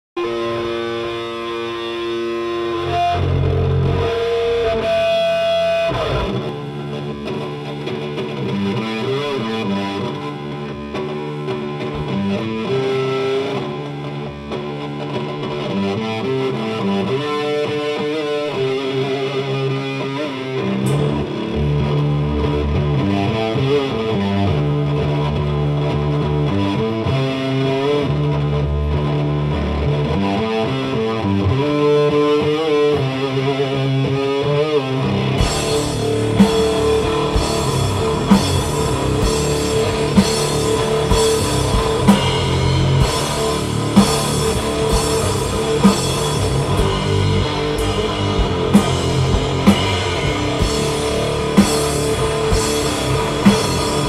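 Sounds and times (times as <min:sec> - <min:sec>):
distorted electric guitar riff: 0:00.0 - 0:54.0
metal band playing live: 0:00.2 - 0:54.0.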